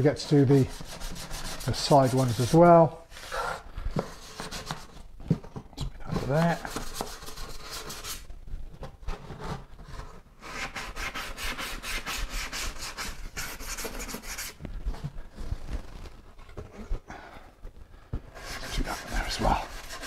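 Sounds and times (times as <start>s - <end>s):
sandpaper scratching by hand: 0.2s - 2.9s, 10.4s - 14.6s, 18.4s - 20.0s.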